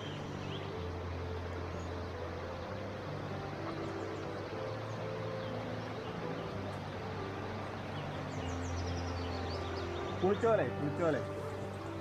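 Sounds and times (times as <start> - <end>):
stream running over rocks: 0.0 - 12.0
bird chirps: 7.8 - 12.0.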